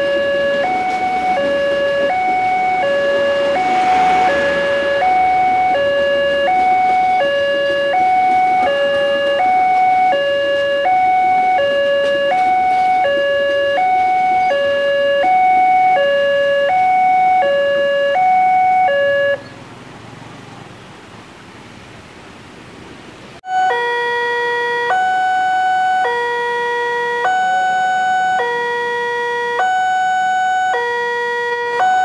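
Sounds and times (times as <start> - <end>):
passenger train passing: 0.0 - 16.9
two-tone level crossing alarm: 0.0 - 19.4, 23.5 - 32.0.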